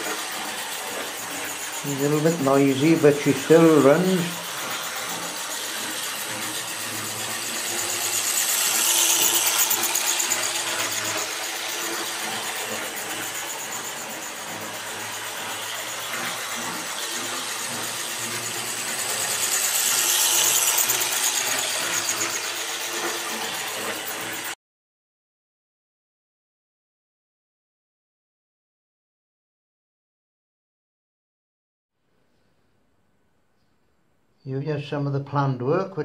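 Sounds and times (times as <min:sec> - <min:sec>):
model train motor whirring and rattling: 0:00.0 - 0:24.6.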